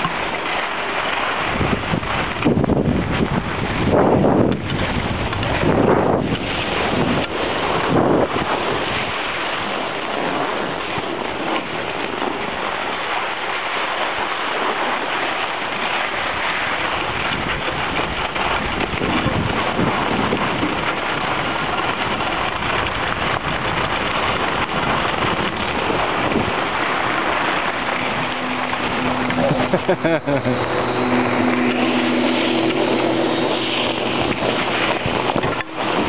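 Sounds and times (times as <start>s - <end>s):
skis sliding over snow: 0.0s - 36.0s
wind on microphone: 0.0s - 36.0s.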